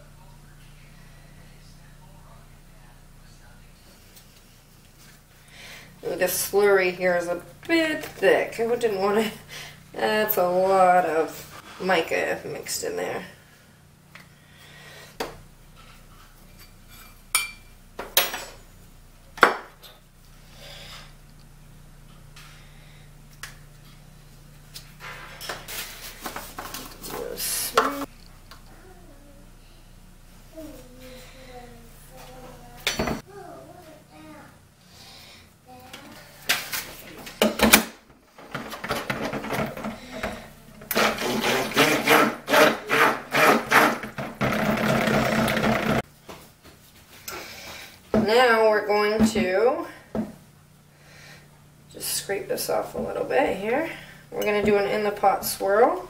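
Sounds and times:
stick blender running: 0:38.4 - 0:46.0.

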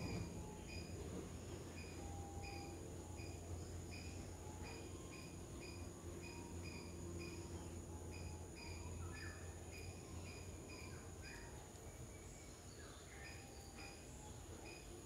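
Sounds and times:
low hum: 0:00.0 - 0:11.0
high insect drone: 0:00.0 - 0:15.0.

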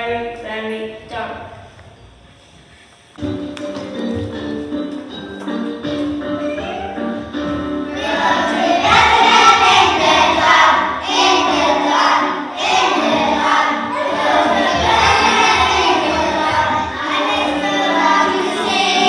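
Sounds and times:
instrumental accompaniment: 0:01.8 - 0:19.0
children's choir singing: 0:07.8 - 0:19.0.

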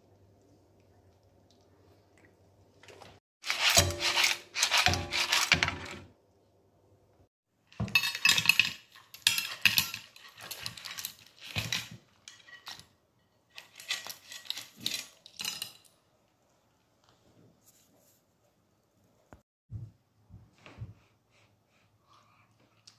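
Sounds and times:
spoon scraping in frying pan: 0:03.4 - 0:06.0.

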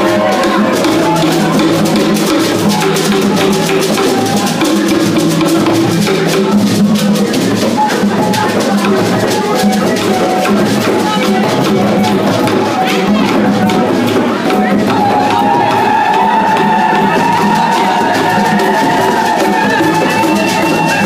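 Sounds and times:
drums and shakers beat: 0:00.0 - 0:21.0
dance music: 0:14.9 - 0:21.0.

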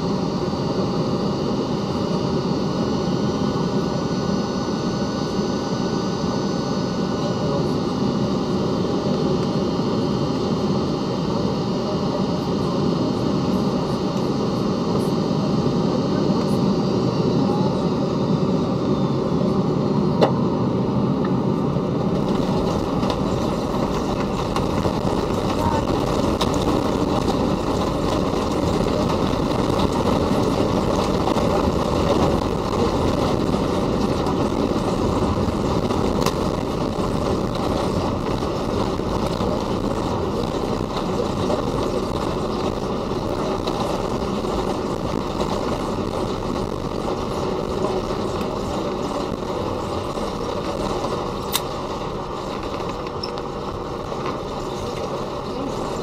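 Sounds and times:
jet engines and airflow rushing: 0:00.0 - 0:56.0.

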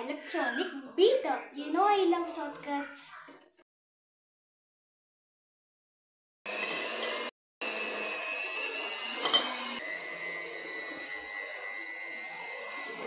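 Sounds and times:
electric hand mixer whining: 0:06.5 - 0:13.0.

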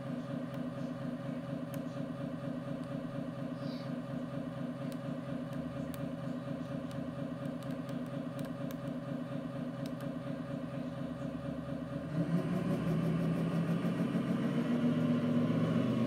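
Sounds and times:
toy speaker diesel engine idling: 0:00.0 - 0:12.1.

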